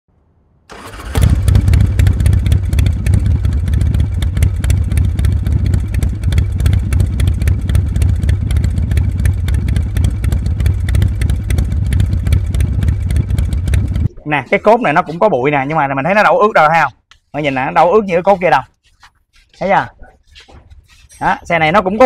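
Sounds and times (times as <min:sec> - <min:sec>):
motorcycle engine running: 0:00.7 - 0:14.1.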